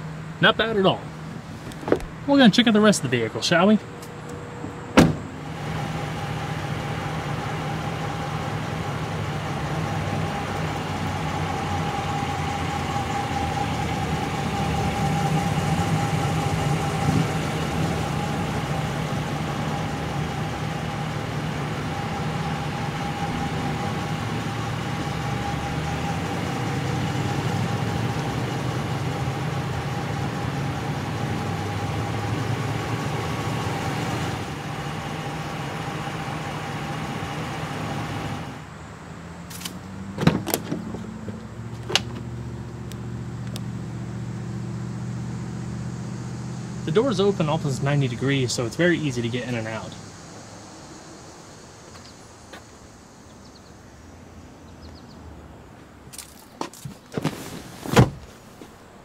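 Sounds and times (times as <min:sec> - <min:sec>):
engine whine: 0:00.0 - 0:59.0
truck engine idling: 0:00.0 - 0:59.0
door shutting thump: 0:01.6 - 0:02.2, 0:05.0 - 0:05.3, 0:40.2 - 0:42.2, 0:57.9 - 0:58.2.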